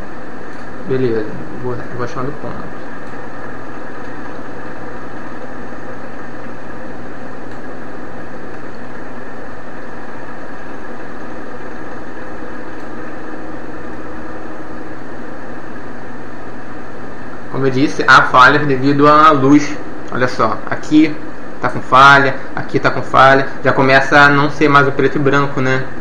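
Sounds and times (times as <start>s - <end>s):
low even hum: 0.0s - 26.0s.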